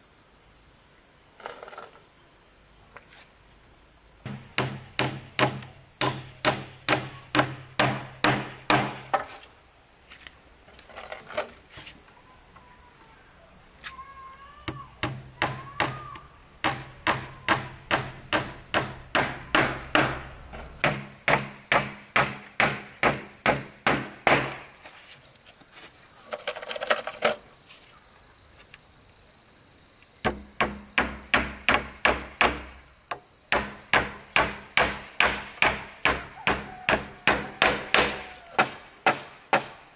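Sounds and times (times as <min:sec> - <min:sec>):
hammer striking wood: 0:04.3 - 0:09.3, 0:14.7 - 0:24.6, 0:30.2 - 0:39.8.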